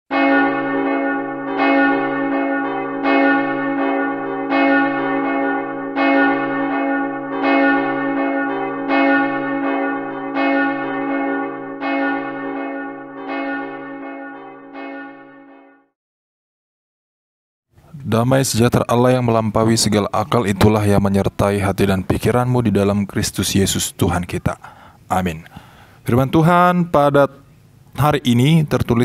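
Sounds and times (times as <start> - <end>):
church bell tolling: 0.1 - 15.9.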